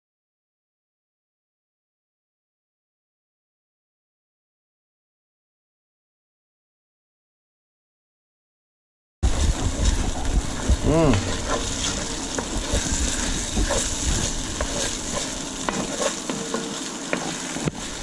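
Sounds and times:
sauce sizzling in a pot: 9.2s - 18.0s
spoon scraping a pot: 11.2s - 17.7s.

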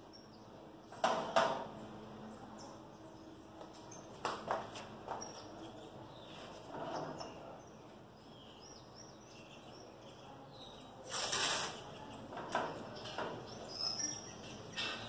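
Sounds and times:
birds chirping faintly: 0.0s - 15.0s
tape ripping off roll: 11.1s - 11.8s
tape tearing and rubbing: 11.1s - 11.8s.

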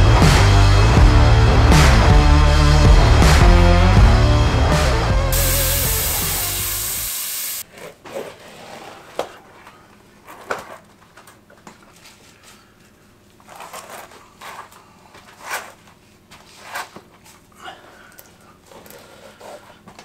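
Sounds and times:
background music: 0.0s - 7.1s.

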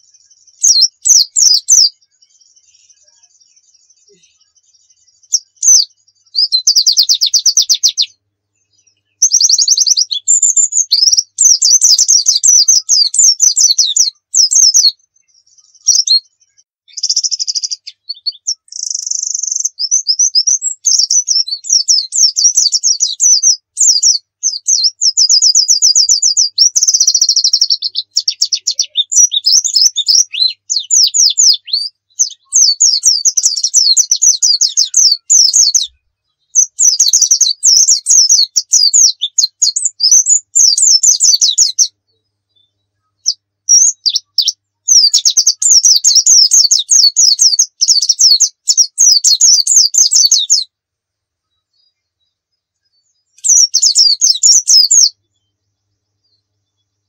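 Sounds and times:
bird song trills and twittering: 0.0s - 50.8s, 51.4s - 57.0s.

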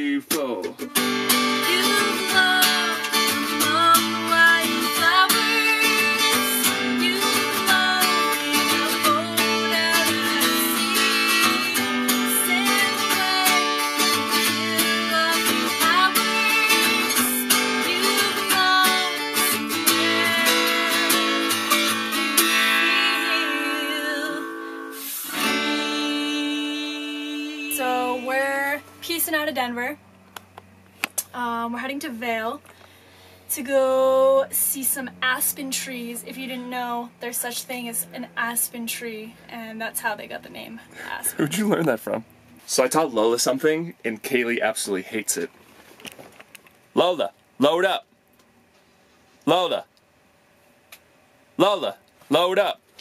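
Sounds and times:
strummed acoustic guitar: 0.1s - 30.0s
person singing: 1.6s - 21.6s, 22.2s - 28.8s.

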